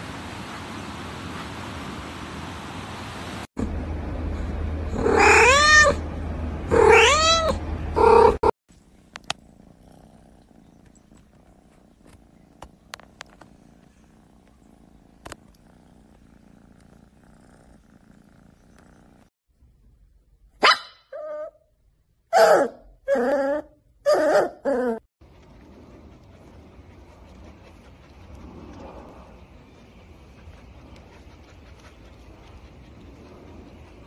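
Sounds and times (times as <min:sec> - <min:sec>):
cat meowing loudly: 0:06.7 - 0:07.6.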